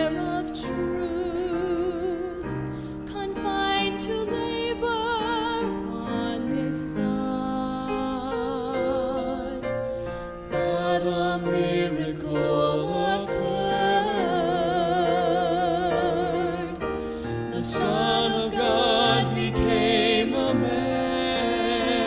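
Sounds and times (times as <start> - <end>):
gospel singing with vibrato: 0.0 - 22.0
sustained instrumental accompaniment: 9.8 - 22.0.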